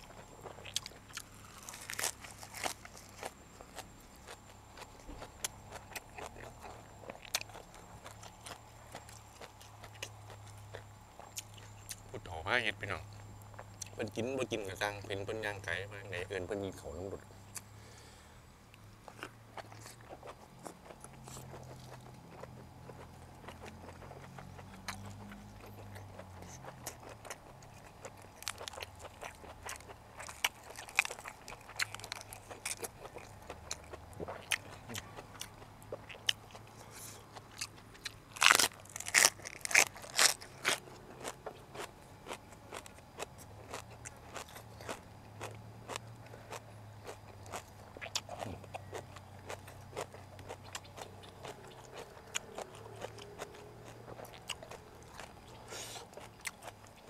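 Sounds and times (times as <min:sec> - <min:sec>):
man chewing and crunching food: 0:00.0 - 0:57.0.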